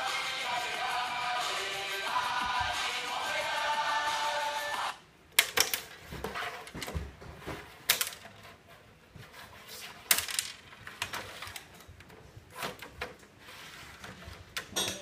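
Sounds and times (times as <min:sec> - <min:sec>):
plastic figures clacking: 0:05.4 - 0:06.0, 0:07.8 - 0:08.4, 0:10.0 - 0:12.1.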